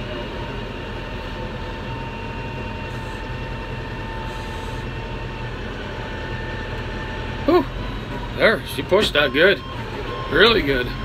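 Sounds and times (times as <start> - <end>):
high whine: 0.0 - 11.0
tractor diesel engine under load: 0.0 - 11.0.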